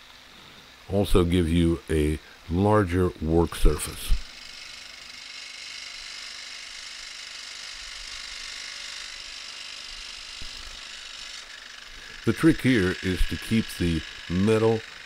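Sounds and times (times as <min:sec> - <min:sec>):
jigsaw cutting sheet metal: 0:03.3 - 0:15.0.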